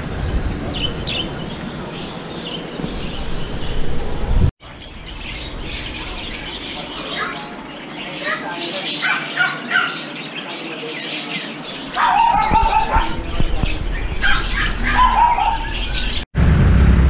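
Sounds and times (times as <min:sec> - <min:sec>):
caged birds chirping: 0:00.0 - 0:16.3
low rumble: 0:12.5 - 0:17.0.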